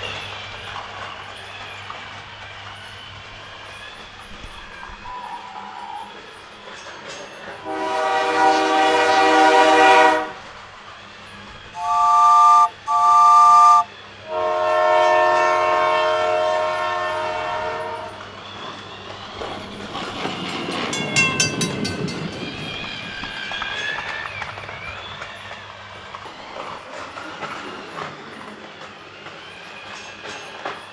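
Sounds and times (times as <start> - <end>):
toy train electronic horn: 7.6 - 10.4, 11.8 - 18.1.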